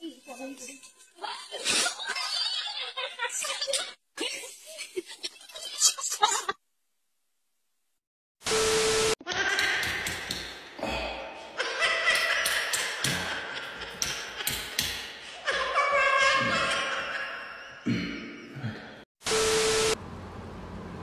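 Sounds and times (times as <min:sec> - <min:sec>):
steady beep: 0:08.5 - 0:09.2, 0:19.3 - 0:20.0.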